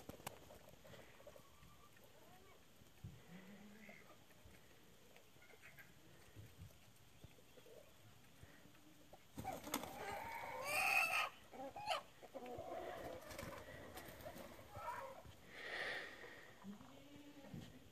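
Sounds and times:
farmyard fowl calling: 5.4 - 6.1, 9.9 - 13.2.

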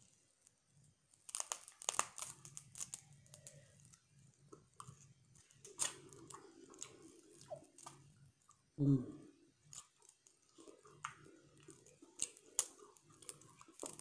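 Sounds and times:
crab shell cracking and snapping: 1.2 - 4.0, 5.6 - 8.0, 9.7 - 14.0.

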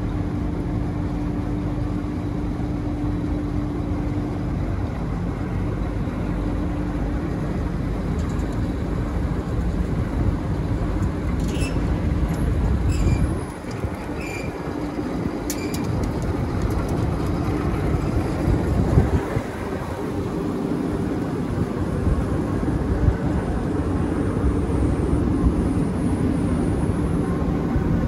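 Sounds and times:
short high squeaks: 11.4 - 11.9, 12.8 - 14.6, 15.5 - 15.9.

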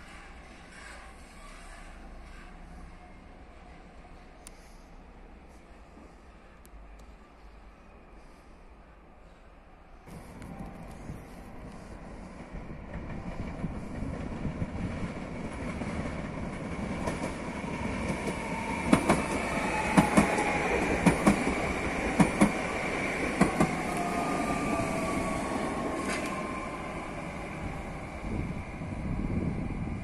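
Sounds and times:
train running noise: 0.0 - 30.0.

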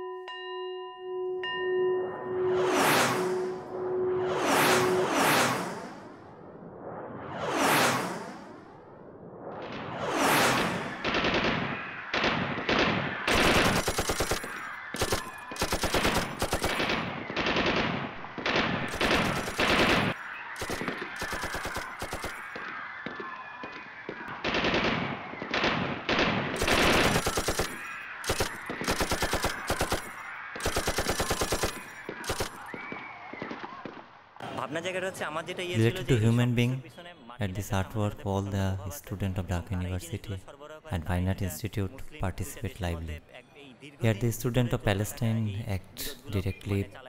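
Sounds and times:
swooshing sweep: 2.0 - 12.2
automatic gunfire bursts: 11.0 - 22.5, 24.4 - 32.8.

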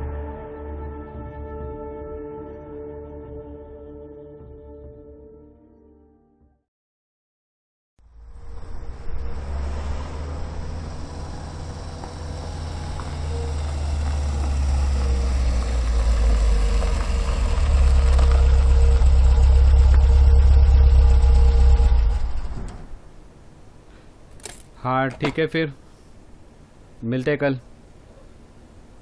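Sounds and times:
car engine low rumble: 8.0 - 23.3.

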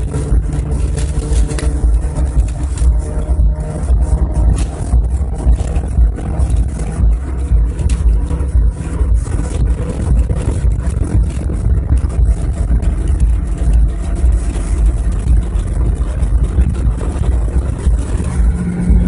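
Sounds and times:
car engine and tyre rumble: 0.0 - 19.0
wind buffeting microphone: 0.0 - 19.0.

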